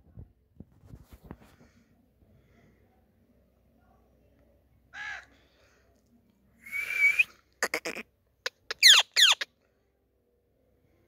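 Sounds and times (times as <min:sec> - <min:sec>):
parakeet calling and screeching: 0:07.6 - 0:09.5.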